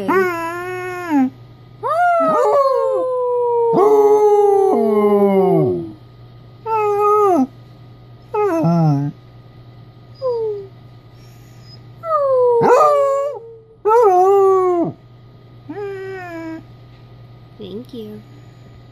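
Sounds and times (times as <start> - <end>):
dog howling: 0.0 - 6.0, 12.0 - 15.0.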